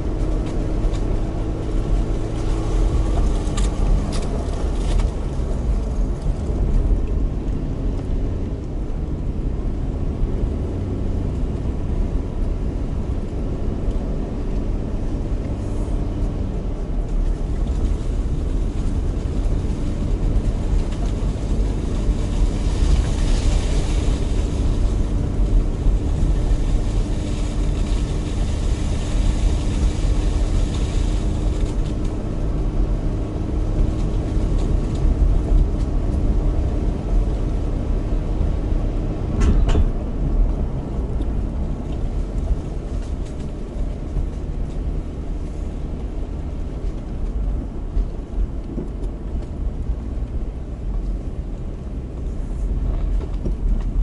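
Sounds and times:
car engine and tyre rumble: 0.0s - 54.0s
brief knock: 39.4s - 40.0s.

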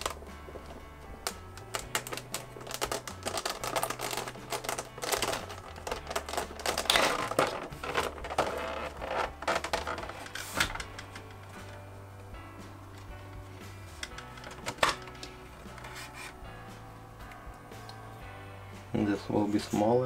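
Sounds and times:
plastic clicking and rustling: 0.0s - 11.8s, 13.9s - 16.4s
low bass line music: 0.0s - 20.0s.

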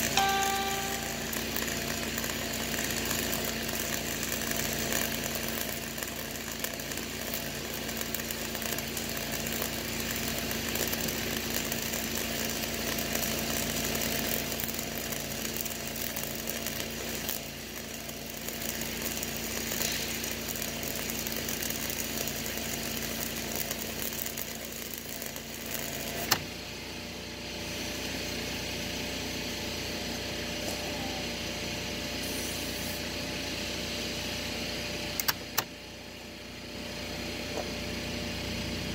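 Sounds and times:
welding arc crackling: 0.0s - 26.5s
sharp click: 35.2s - 35.7s.

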